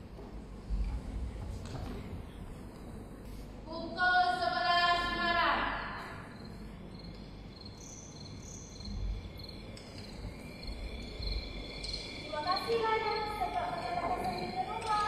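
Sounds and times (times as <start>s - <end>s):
crickets chirping: 4.3s - 15.0s.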